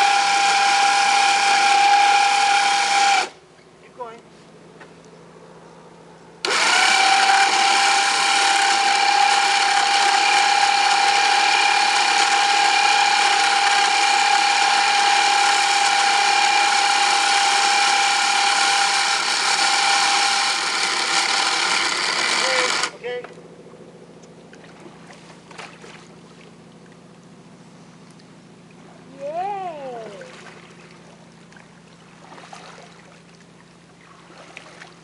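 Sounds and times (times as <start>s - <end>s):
motorized winch whine: 0.0s - 3.4s, 6.4s - 23.0s.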